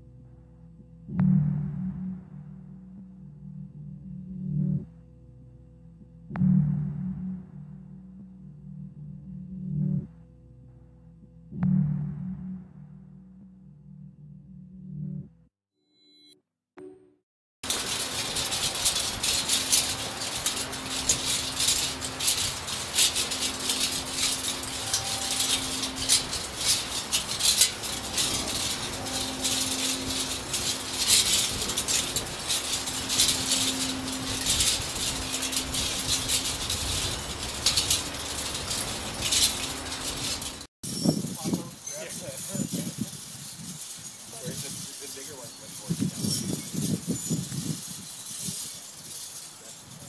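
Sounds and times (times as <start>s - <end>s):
metal sculpture rattling and clicking: 17.6s - 50.0s.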